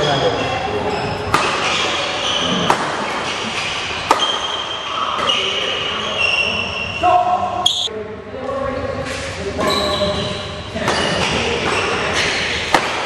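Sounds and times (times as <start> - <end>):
rackets striking a shuttlecock: 2.7 - 4.7
high-pitched shoe squeaks: 7.6 - 7.9.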